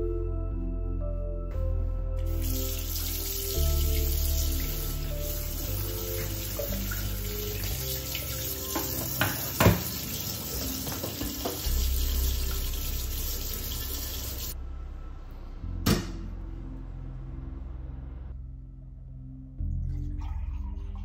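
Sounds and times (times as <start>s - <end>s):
tap water running: 2.2s - 14.6s.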